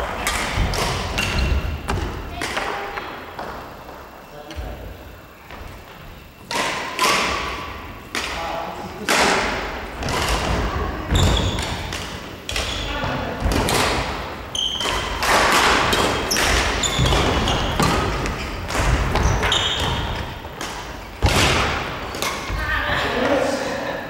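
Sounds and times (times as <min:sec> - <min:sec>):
rackets hitting shuttlecock: 0:00.0 - 0:03.5, 0:06.4 - 0:08.4, 0:09.0 - 0:22.6.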